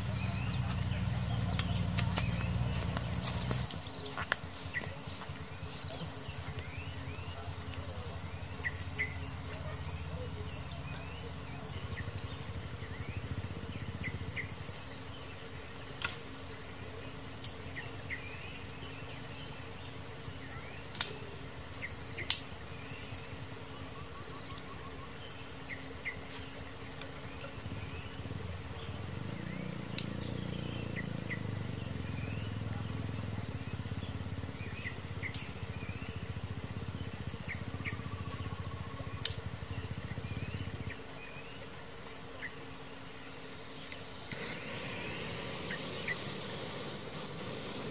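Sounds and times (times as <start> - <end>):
low rumble: 0.0 - 15.2
birds chirping: 0.0 - 47.9
sharp snaps: 0.1 - 8.0, 15.9 - 16.4, 17.4 - 17.8, 20.9 - 21.4, 22.2 - 22.6, 29.7 - 31.1, 34.8 - 36.1, 39.0 - 40.9, 43.8 - 44.7.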